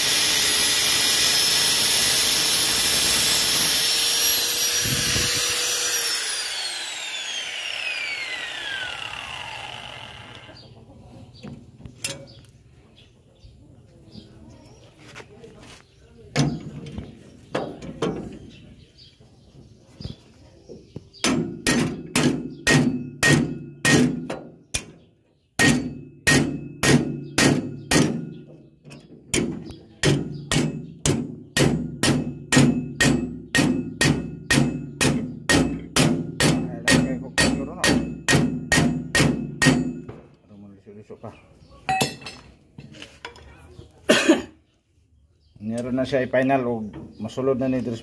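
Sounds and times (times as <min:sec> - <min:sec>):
hammer striking steel punch: 0:21.2 - 0:24.9, 0:25.6 - 0:28.3, 0:29.4 - 0:40.2.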